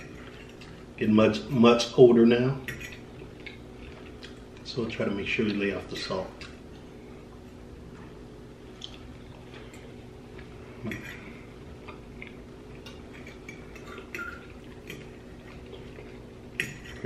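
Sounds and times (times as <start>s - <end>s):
forks clinking on plates: 2.6s - 3.1s, 12.8s - 15.2s, 16.6s - 17.0s.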